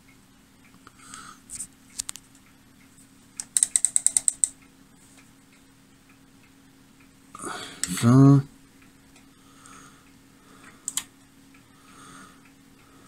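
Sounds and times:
rotary switch clicking: 3.4 - 4.6, 10.8 - 11.1.

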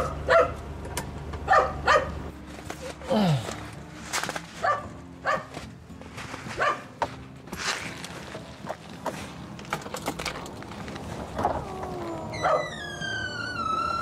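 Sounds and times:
dog barking: 0.0 - 0.6, 1.5 - 2.1, 4.6 - 5.5, 6.6 - 6.9, 12.4 - 12.7
background music: 0.0 - 14.0.

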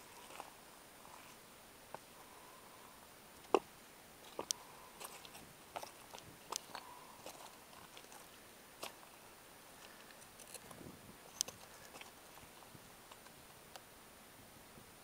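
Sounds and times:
footsteps on loose stones: 3.5 - 9.1.

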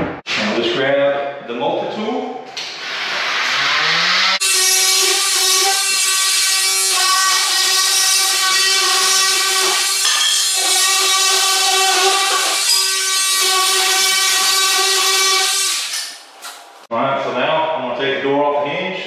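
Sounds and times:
multi-tool cutting wood: 2.6 - 16.6.

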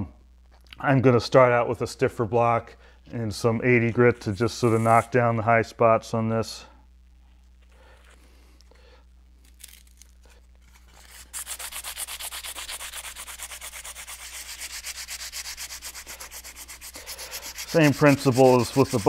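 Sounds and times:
hand sanding with sandpaper: 4.2 - 5.2, 10.8 - 19.0.

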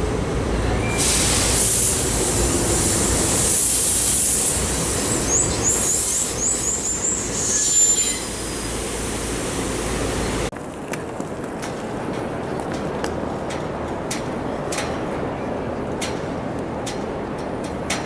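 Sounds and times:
train whine slowing: 0.0 - 10.5
wheel squeals: 5.1 - 8.7.

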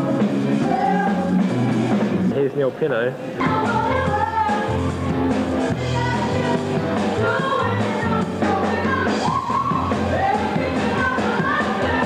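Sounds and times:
person singing: 0.0 - 1.4
rock band playing: 0.0 - 2.6, 3.3 - 12.0.

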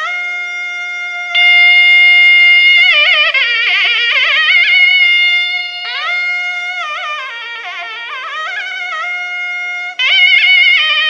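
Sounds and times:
double-reed wind instrument melody: 0.0 - 11.0.

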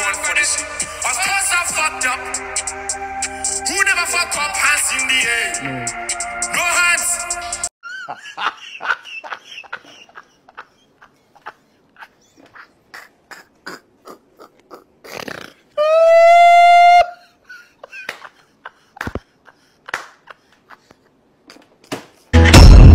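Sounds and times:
man laughing: 7.8 - 15.0, 16.8 - 21.7.

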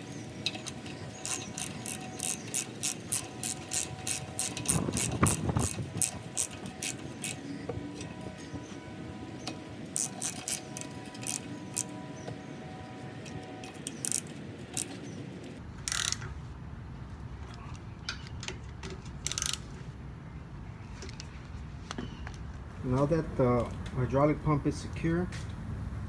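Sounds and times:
ratchet wrench clicking: 0.0 - 7.4, 10.0 - 11.9, 13.2 - 15.0, 15.8 - 16.3, 19.2 - 19.6.

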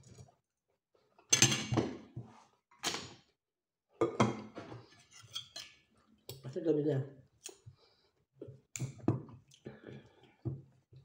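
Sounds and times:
spoon scraping ceramic plate: 4.9 - 5.8.

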